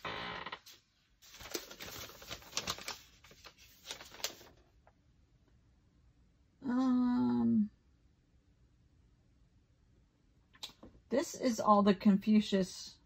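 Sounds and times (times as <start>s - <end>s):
paper rustling and shuffling: 0.0s - 5.0s.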